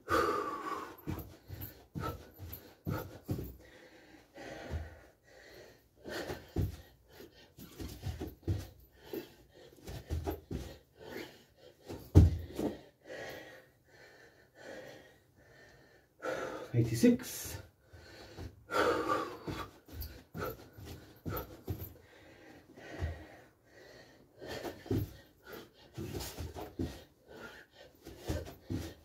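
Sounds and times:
man panting: 0.0 - 29.0
feet and hands thudding on floor: 1.0 - 3.6, 6.1 - 6.9, 7.6 - 10.8, 11.8 - 12.8, 18.3 - 22.0, 22.8 - 23.4, 24.5 - 27.1, 28.0 - 29.0.

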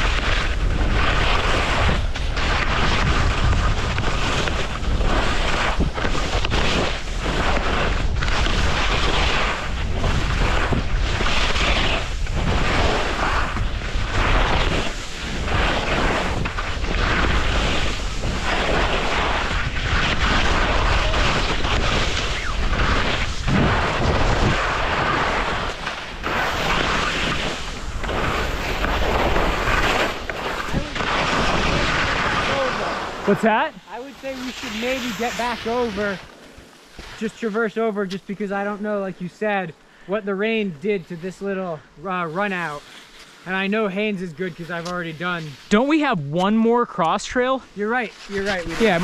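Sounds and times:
wind rushing over microphone: 0.0 - 39.6
skis scraping over snow: 0.0 - 49.0.

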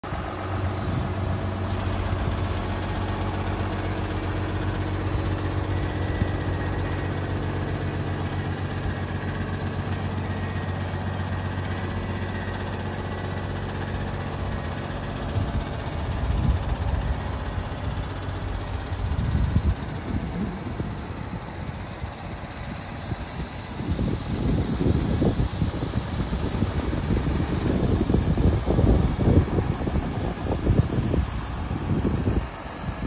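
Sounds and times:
diesel truck engine idling: 0.0 - 33.0.

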